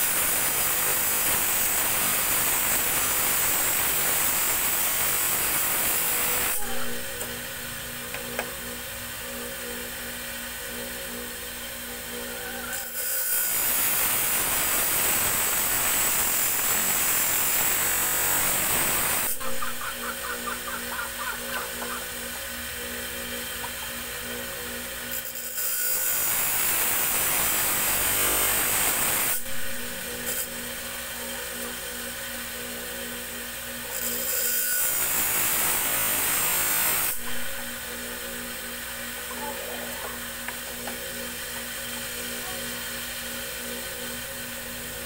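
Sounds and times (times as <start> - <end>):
steel blade on grinding wheel: 0.0 - 45.0
steady machine hum: 6.1 - 12.7, 17.6 - 25.2, 29.4 - 33.7.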